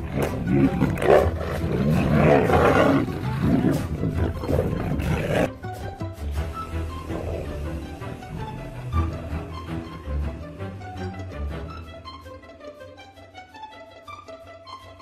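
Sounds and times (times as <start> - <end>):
tigers growling and roaring: 0.0 - 5.5, 6.8 - 9.4
background music: 0.0 - 15.0.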